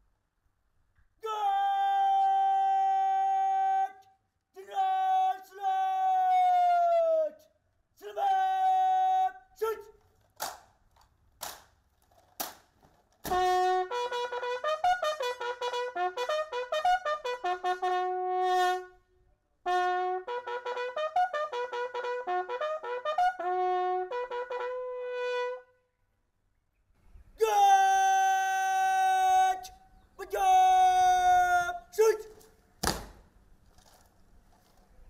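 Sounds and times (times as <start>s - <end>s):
military bugle call: 1.2s - 7.4s, 8.0s - 10.0s, 13.2s - 25.8s, 27.4s - 32.5s.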